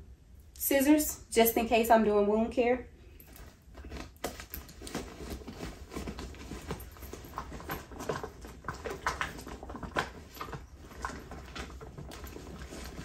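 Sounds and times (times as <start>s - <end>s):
canvas bag rustling: 3.1s - 13.0s.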